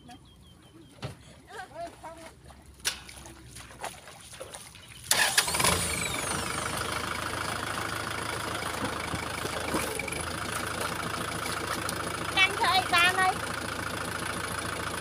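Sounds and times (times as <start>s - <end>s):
tractor diesel engine idling: 5.1s - 15.0s.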